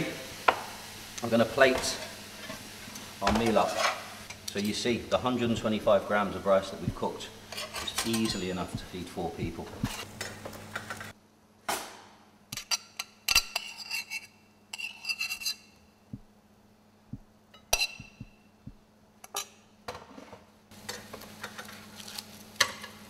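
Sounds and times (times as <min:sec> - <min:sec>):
metal utensil clinking on pan and plate: 0:07.6 - 0:08.8.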